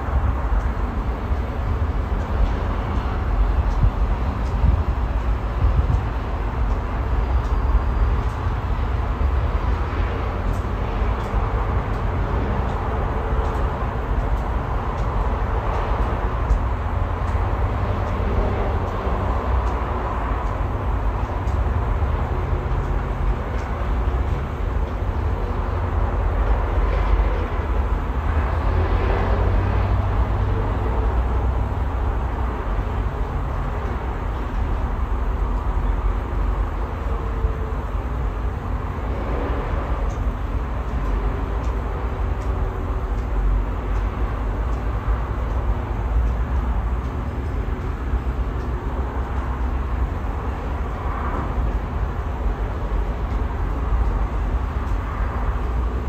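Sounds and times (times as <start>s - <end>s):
wind buffeting microphone: 0.0s - 31.0s
distant city traffic hum: 0.0s - 56.0s.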